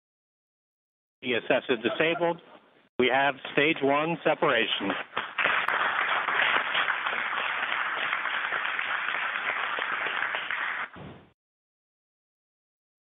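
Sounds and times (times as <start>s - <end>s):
applause over broadcast audio: 3.5s - 11.0s.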